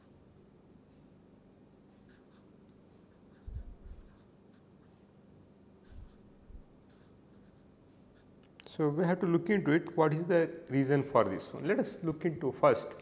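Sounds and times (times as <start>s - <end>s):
marker scratching on paper: 3.1s - 4.7s, 5.8s - 6.2s, 6.8s - 8.3s.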